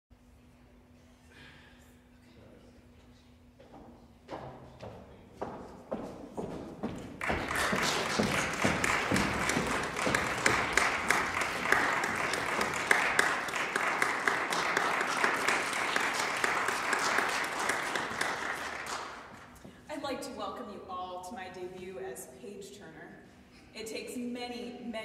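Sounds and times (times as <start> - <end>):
audience applauding: 7.1 - 19.6.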